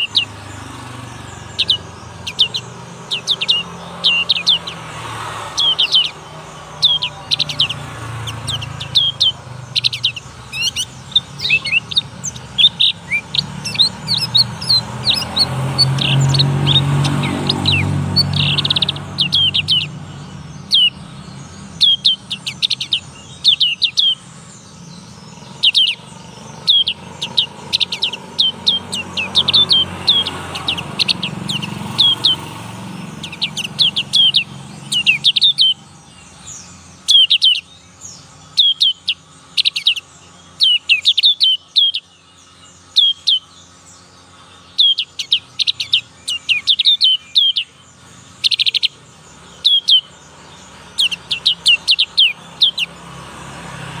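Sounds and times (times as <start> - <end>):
bird chirping song: 0.0 - 54.0.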